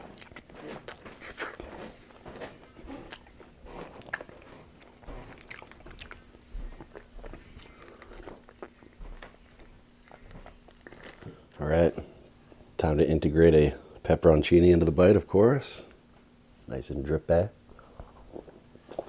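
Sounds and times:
chewing with lip smacks: 0.0 - 11.6, 17.8 - 19.0.

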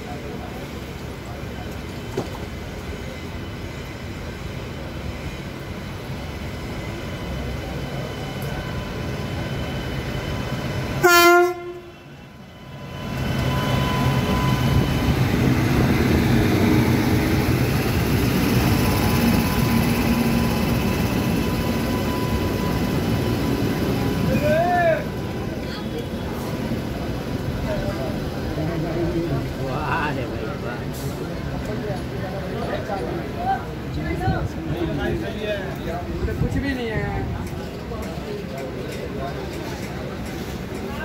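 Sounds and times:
train rumble and wheel noise: 0.0 - 41.0
train horn blast: 11.0 - 12.2.

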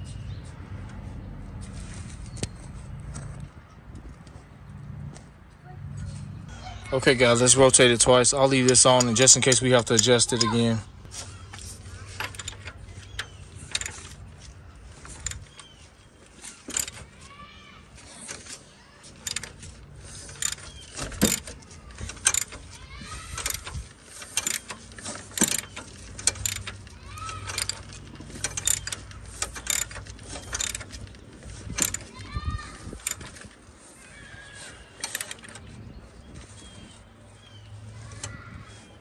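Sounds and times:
engine turning over by hand: 7.0 - 39.0
ratchet wrench clicking: 11.2 - 14.3, 14.9 - 15.7, 16.6 - 17.1, 19.2 - 33.5, 35.0 - 35.7.

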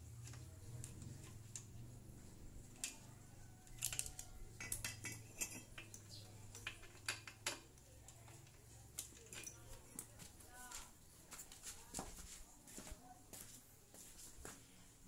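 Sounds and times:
metallic clinks and taps: 3.8 - 10.2.

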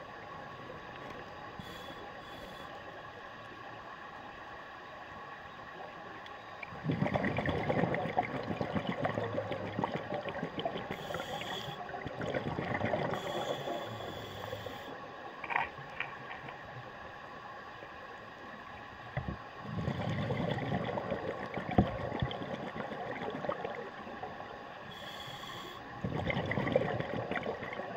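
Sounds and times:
diver hissing inhale: 1.6 - 2.8, 11.0 - 11.9, 13.1 - 15.0, 24.9 - 25.9
bubbling exhales: 6.8 - 14.5, 19.6 - 23.9, 26.0 - 27.9.

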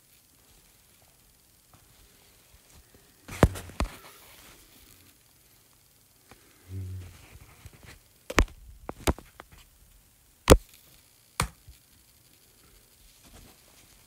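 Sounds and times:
brief low hum: 6.7 - 7.5.

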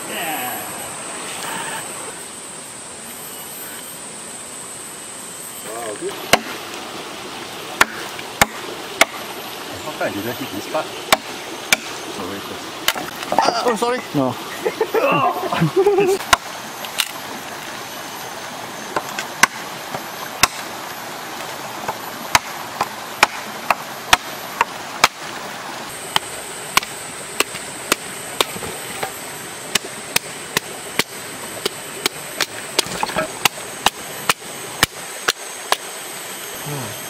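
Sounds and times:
blade chopping wood: 6.3 - 6.6, 7.8 - 9.3, 11.1 - 12.0, 12.8 - 13.5, 18.9 - 20.7, 21.8 - 25.4, 26.1 - 35.9.

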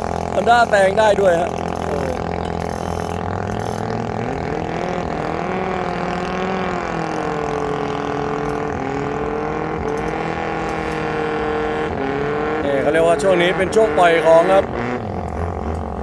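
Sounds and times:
boat engine running hard: 0.0 - 16.0.

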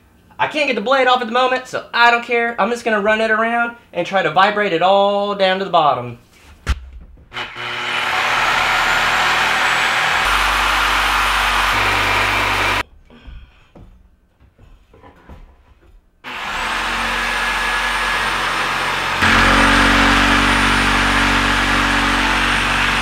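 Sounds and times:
electric sander whining: 7.4 - 12.8, 16.3 - 23.0.

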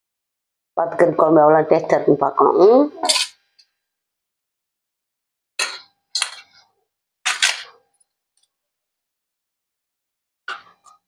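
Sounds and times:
steel spoon scraping steel plate: 3.0 - 3.3.

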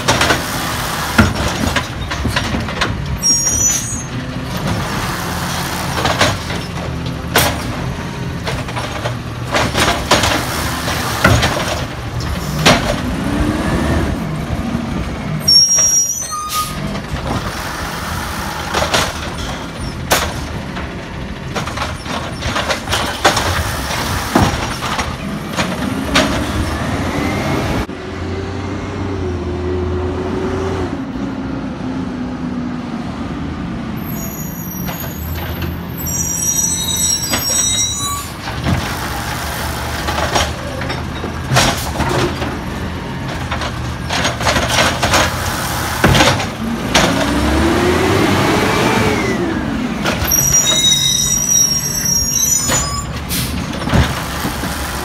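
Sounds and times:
high brake squeals: 3.2 - 4.2, 15.4 - 16.9, 34.0 - 38.4, 50.2 - 53.6
carts and arm banging: 4.1 - 13.2, 18.6 - 26.8, 38.2 - 48.6, 52.6 - 55.0
garbage truck engine revving: 4.1 - 15.4, 16.8 - 31.1, 35.0 - 55.0.

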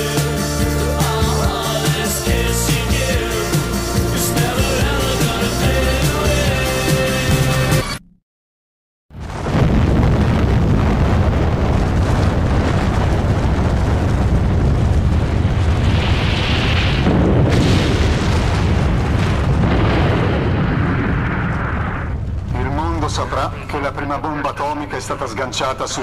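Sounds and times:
explosion with long loud rumble: 9.1 - 24.2.

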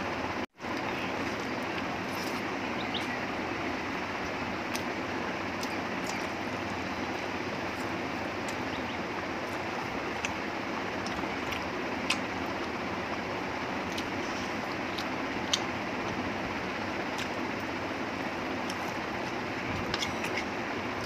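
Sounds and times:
chewing: 0.7 - 3.2, 4.2 - 12.8, 13.8 - 15.7, 17.1 - 17.7, 18.6 - 21.0
fingers mixing food on a plate: 18.6 - 21.0.

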